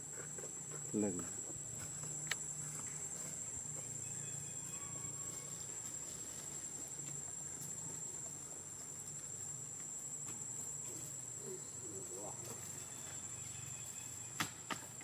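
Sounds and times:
insects trilling: 0.0 - 15.0.

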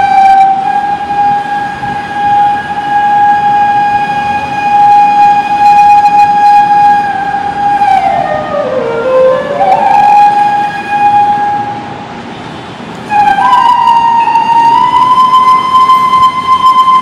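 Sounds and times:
bamboo flute playing slowly: 0.0 - 11.9, 13.0 - 17.0.

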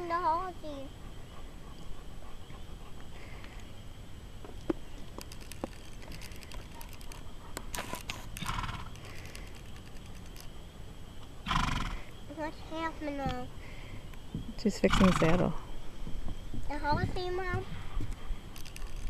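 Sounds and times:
saddle buckles clinking: 5.0 - 10.5, 18.1 - 19.0.

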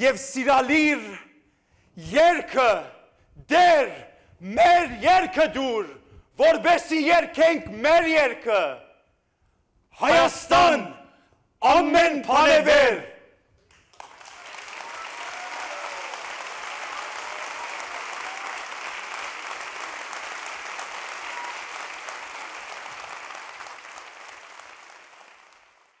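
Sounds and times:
audience applauding: 13.7 - 26.0.

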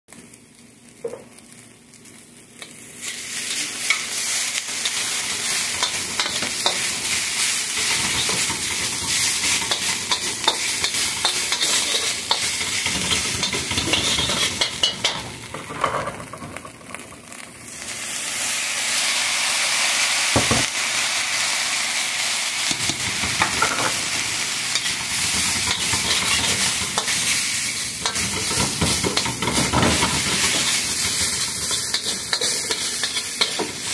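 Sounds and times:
food sizzling in a wok: 0.1 - 33.9
metal spatula scraping a wok: 3.1 - 16.0, 24.7 - 33.9.

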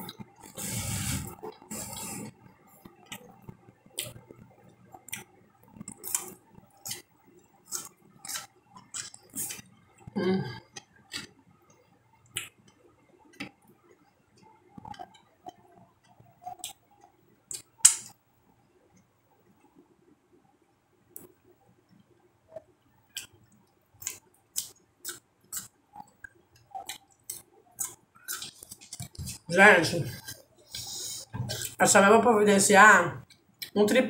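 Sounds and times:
chewing noises: 0.0 - 10.1, 23.1 - 29.4.

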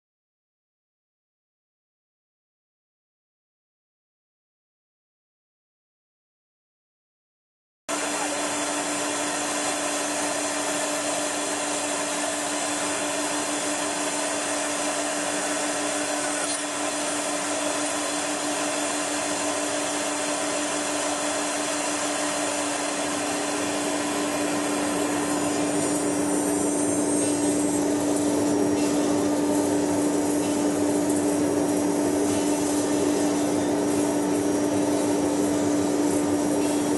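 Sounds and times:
machine whirring and humming: 7.9 - 36.9.

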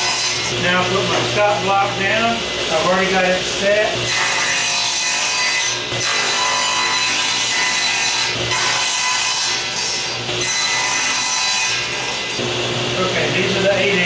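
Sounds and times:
table saw cutting boards: 0.0 - 14.0.

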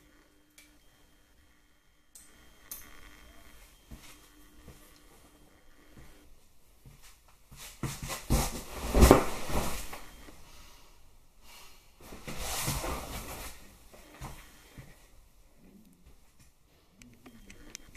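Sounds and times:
clothing rustling and handling noise: 3.5 - 10.6, 11.6 - 16.7.

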